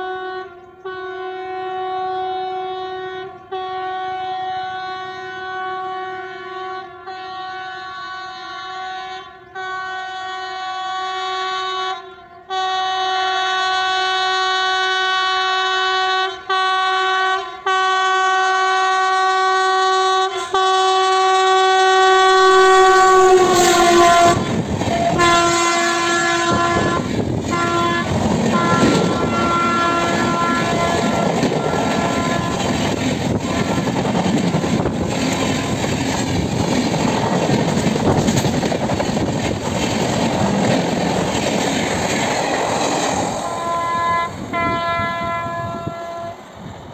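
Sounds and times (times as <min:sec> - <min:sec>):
locomotive air horn: 0:00.0 - 0:35.9, 0:43.0 - 0:46.7
train wheels clattering over rail joints: 0:26.6 - 0:43.3.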